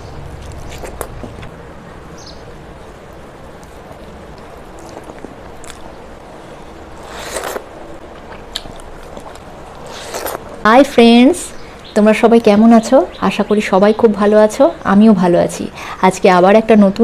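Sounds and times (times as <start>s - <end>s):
chewing and mouth noises: 0.2s - 1.6s, 3.5s - 6.2s, 7.0s - 10.6s.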